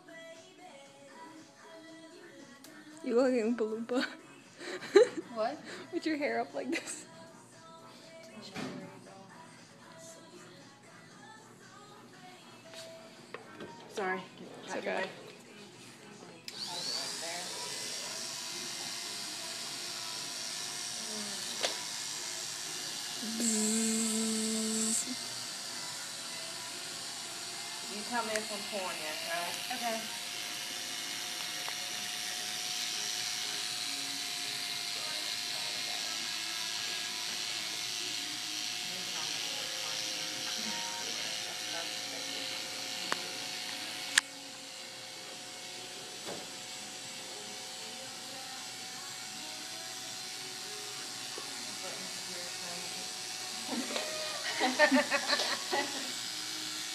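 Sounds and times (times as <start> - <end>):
electric hair clippers buzzing: 16.4 - 56.9.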